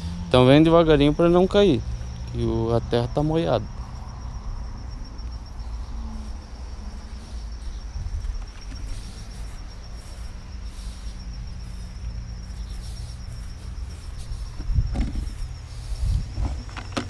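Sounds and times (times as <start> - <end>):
insect trilling: 0.0 - 17.0
soft rustles: 5.2 - 17.0.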